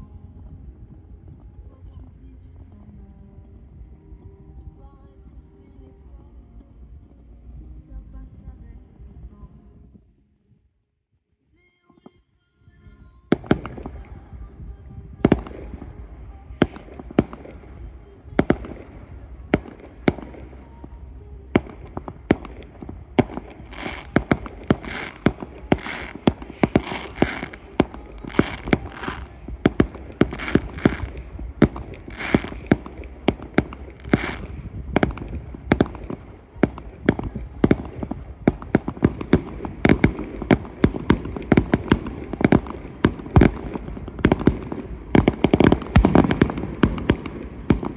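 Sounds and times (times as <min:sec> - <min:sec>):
fireworks bursting with sharp bangs: 0:12.8 - 0:47.9.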